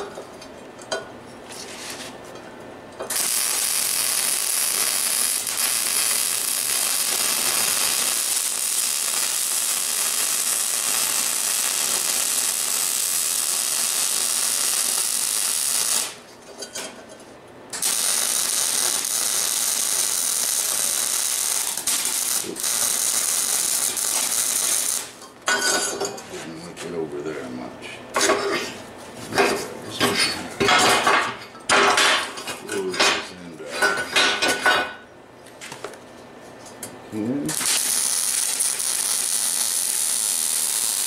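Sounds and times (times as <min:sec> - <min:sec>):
welder arc crackling: 0:03.1 - 0:16.2, 0:17.7 - 0:25.2, 0:37.3 - 0:41.0.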